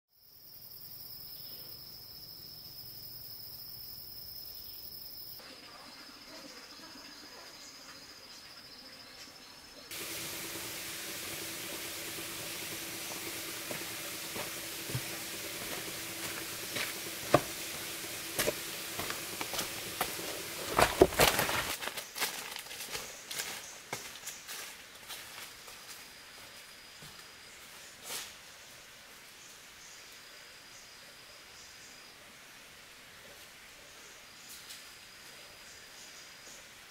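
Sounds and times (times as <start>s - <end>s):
insect hiss: 0.1s - 36.9s
insects trilling: 0.2s - 32.6s
low steady hum: 9.9s - 21.7s
footsteps crunching on leaf litter: 9.9s - 27.2s.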